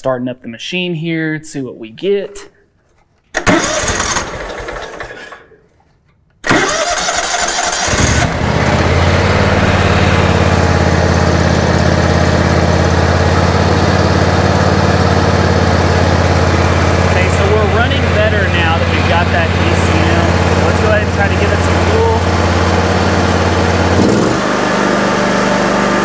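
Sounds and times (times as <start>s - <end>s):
mower engine idling: 3.4s - 5.4s, 6.4s - 26.0s
starter motor cranking: 3.4s - 5.4s, 6.4s - 11.5s.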